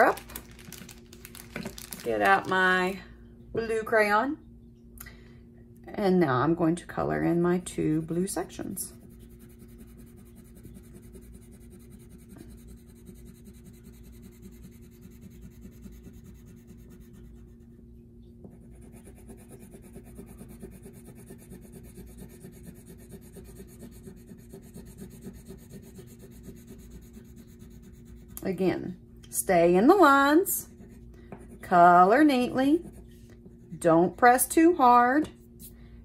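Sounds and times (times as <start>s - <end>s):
low steady hum: 0.0s - 36.0s
crayon scratching on paper: 7.1s - 17.6s, 18.5s - 28.4s.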